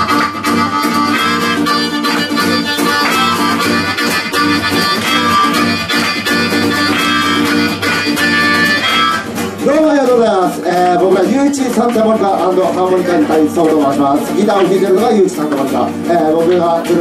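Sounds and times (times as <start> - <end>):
harmonica playing chords: 0.0 - 9.6
strummed acoustic guitar: 0.0 - 17.0.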